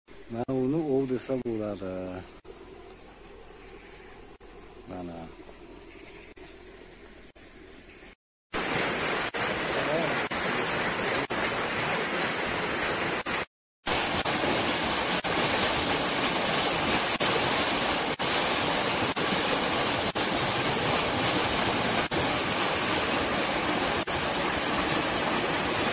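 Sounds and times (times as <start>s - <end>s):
stream rushing over rocks: 8.6s - 25.9s.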